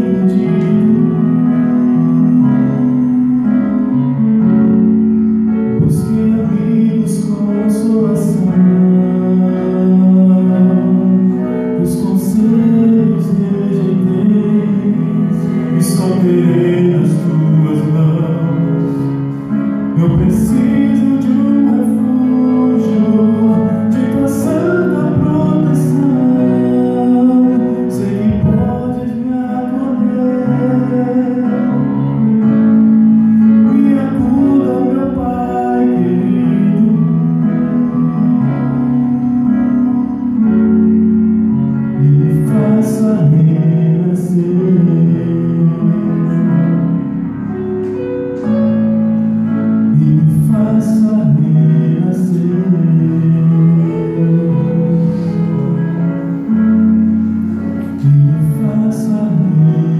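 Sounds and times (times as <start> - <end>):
instrumental backing track: 0.0 - 59.9
man singing into microphone: 0.0 - 59.9.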